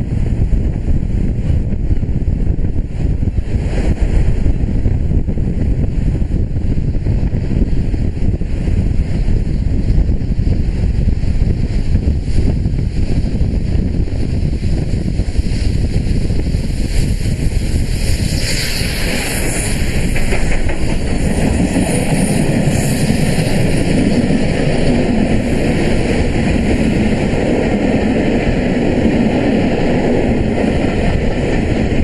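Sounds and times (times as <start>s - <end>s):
steam locomotives passing: 0.0s - 32.0s
wind buffeting microphone: 0.0s - 32.0s
coaches rolling over rails: 18.4s - 32.0s.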